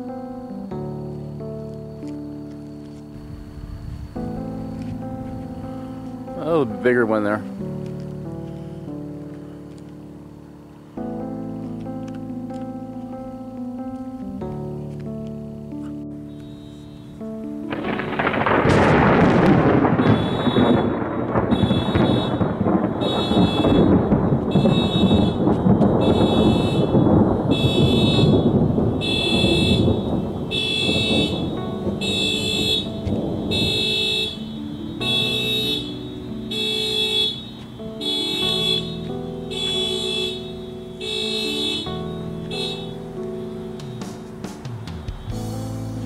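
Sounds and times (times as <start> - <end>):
background music with low notes: 0.0 - 46.0
thunderclap rumbling: 3.1 - 7.4, 17.0 - 46.0
car alarm pulsing: 16.3 - 45.4.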